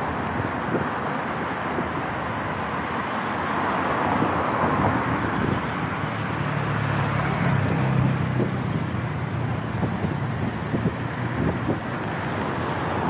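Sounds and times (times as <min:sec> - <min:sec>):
street traffic noise: 0:00.0 - 0:13.0
vehicle engine hum: 0:00.1 - 0:13.0.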